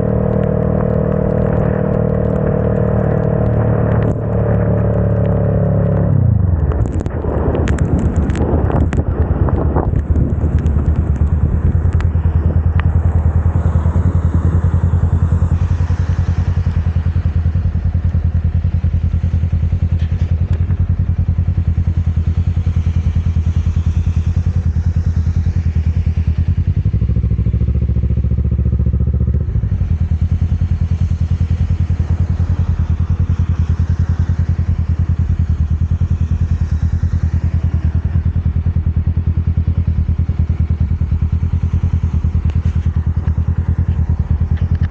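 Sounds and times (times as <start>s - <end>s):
motorcycle engine running: 0.0s - 44.9s
tyres hissing on wet road: 11.9s - 44.8s.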